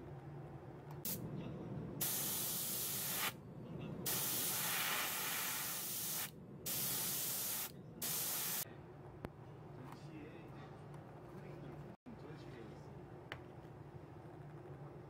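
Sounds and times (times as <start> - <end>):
spray paint hissing: 2.0 - 3.4, 4.1 - 8.6.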